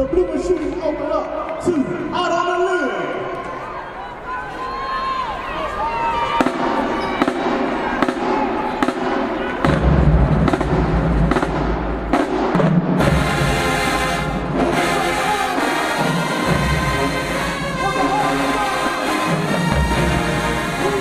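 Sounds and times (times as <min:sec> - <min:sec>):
drumline strikes: 0:06.2 - 0:21.0
brass sustained chords: 0:13.0 - 0:21.0.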